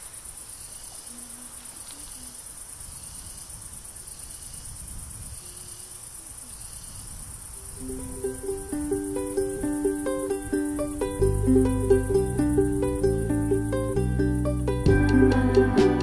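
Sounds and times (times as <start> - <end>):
crickets trilling: 0.0 - 14.8
plucked ukulele music: 7.8 - 16.0.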